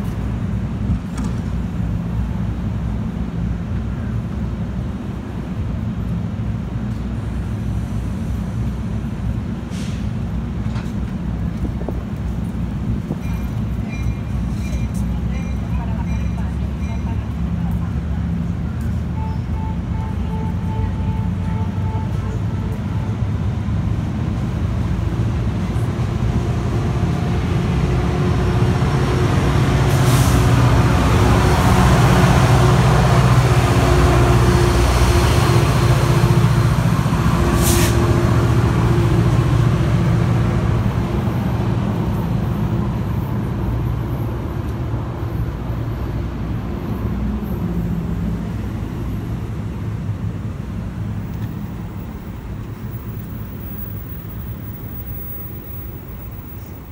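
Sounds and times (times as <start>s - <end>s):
train engine and wheel rumble: 0.0s - 56.9s
short air hisses: 9.7s - 10.2s, 37.6s - 38.0s.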